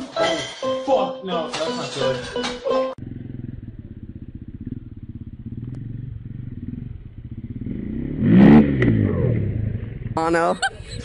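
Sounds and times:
dirt bike engine revving: 0:03.0 - 0:10.7.

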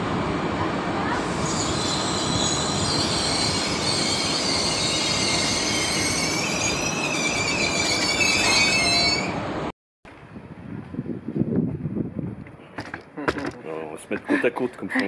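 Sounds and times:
train wheels squealing: 0:01.2 - 0:09.4.

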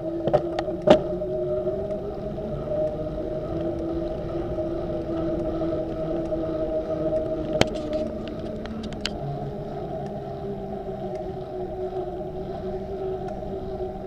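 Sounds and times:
bicycle rolling hum: 0:00.0 - 0:14.0
light clicks: 0:05.2 - 0:12.0, 0:13.1 - 0:13.7.

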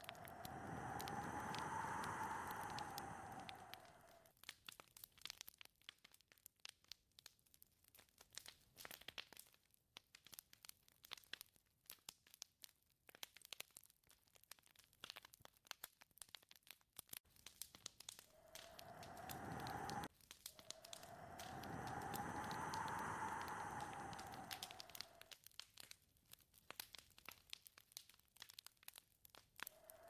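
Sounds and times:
whistling wind gust: 0:00.0 - 0:04.2, 0:18.4 - 0:25.3
faint crackling and ticking: 0:00.0 - 0:30.0.

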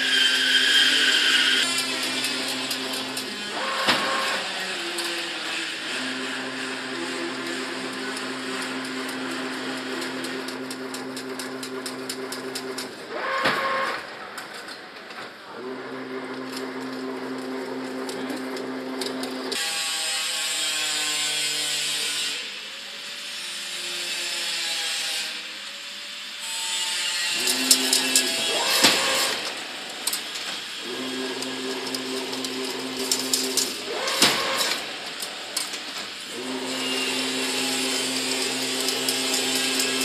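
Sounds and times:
motor hum: 0:00.0 - 0:05.2, 0:05.8 - 0:14.1, 0:15.5 - 0:19.6, 0:27.3 - 0:40.0
mechanical clicking and clatter: 0:01.3 - 0:05.2, 0:06.0 - 0:15.3, 0:27.3 - 0:40.0.

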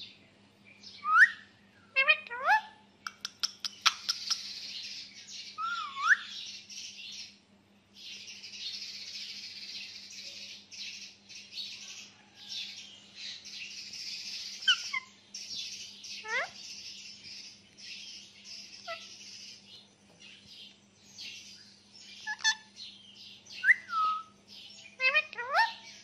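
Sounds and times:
parakeets chattering: 0:02.0 - 0:07.0, 0:13.8 - 0:19.6, 0:22.1 - 0:22.8, 0:24.9 - 0:25.9
sharp clicks: 0:03.1 - 0:04.4.

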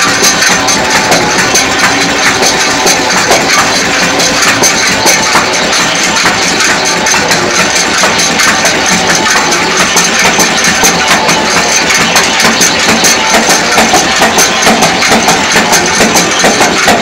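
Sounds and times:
machine rollers clattering: 0:00.0 - 0:17.0.

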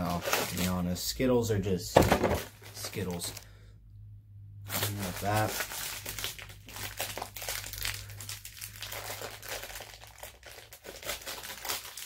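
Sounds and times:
plastic wrapper crinkling: 0:00.0 - 0:00.8, 0:04.7 - 0:12.0.

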